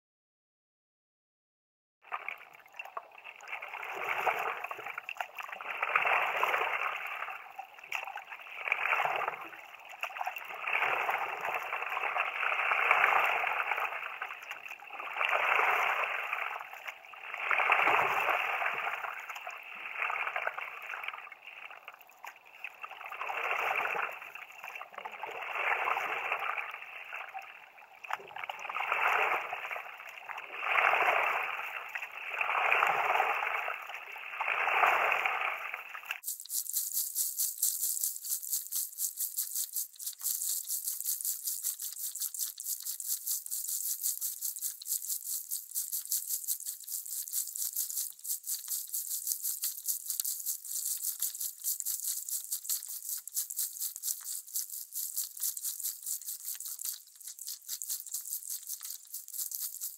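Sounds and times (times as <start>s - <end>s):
water gurgling and splashing: 2.0s - 59.9s
paddle strokes through water: 28.5s - 38.0s.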